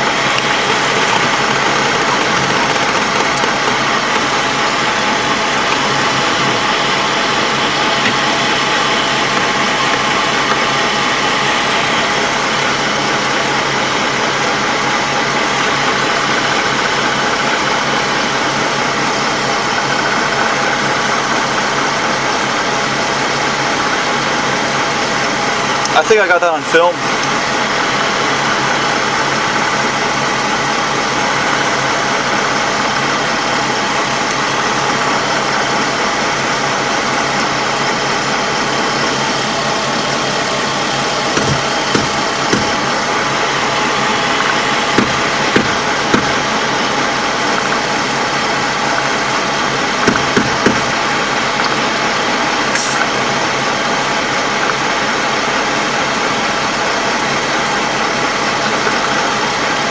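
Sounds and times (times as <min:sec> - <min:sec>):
diesel engine drone: 0:00.0 - 0:59.9
sharp knocks: 0:41.4 - 0:42.8, 0:45.0 - 0:46.4, 0:50.0 - 0:51.0.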